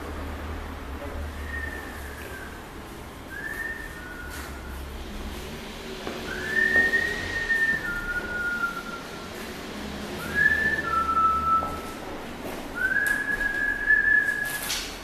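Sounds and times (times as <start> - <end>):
person whistling a slow tune: 1.4 - 2.7, 3.3 - 4.9, 6.3 - 9.4, 10.2 - 12.0, 12.8 - 14.8.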